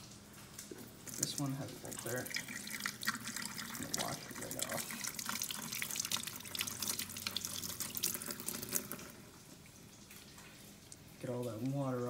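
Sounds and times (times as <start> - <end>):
faucet water splashing into sink: 0.0 - 12.0.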